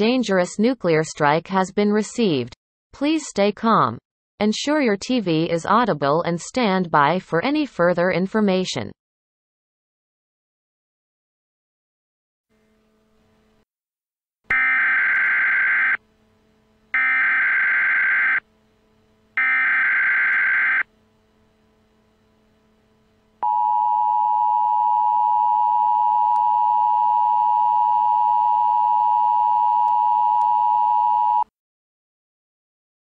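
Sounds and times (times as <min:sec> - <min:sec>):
screeching data bursts: 0:17.0 - 0:18.4, 0:19.4 - 0:20.8
two-tone attention signal: 0:23.4 - 0:31.4.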